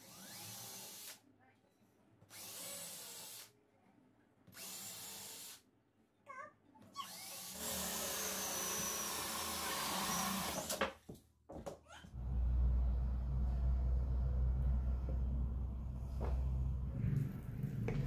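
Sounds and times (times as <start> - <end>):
cordless drill boring into wood: 0.0 - 1.2, 2.3 - 3.5, 4.6 - 5.6, 7.0 - 10.8.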